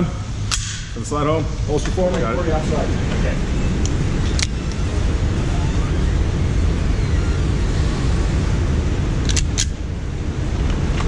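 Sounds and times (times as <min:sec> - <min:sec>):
steady low rumble: 0:00.0 - 0:11.0
pistol clicks: 0:00.5 - 0:00.9, 0:09.2 - 0:09.8.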